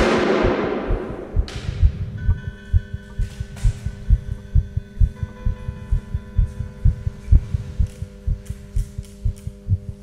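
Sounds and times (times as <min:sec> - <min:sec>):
loud noisy crash: 0:00.0 - 0:00.9
deep heartbeat-like thumps: 0:00.0 - 0:10.0
steady low drone: 0:00.0 - 0:10.0.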